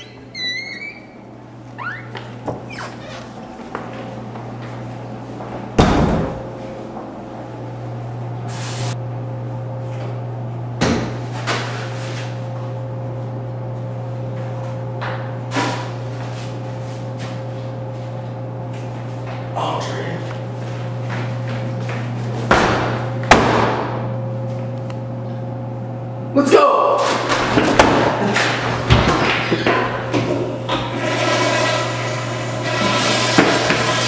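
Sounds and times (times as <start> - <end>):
steady low hum: 0.0 - 26.4
sharp knocks and bangs: 22.5 - 24.0.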